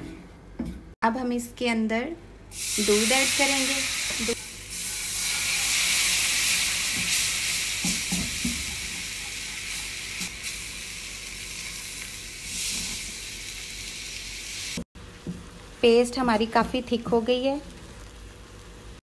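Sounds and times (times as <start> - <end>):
milk sizzling in pan: 2.5 - 19.0
spatula knocking pan: 7.8 - 10.0.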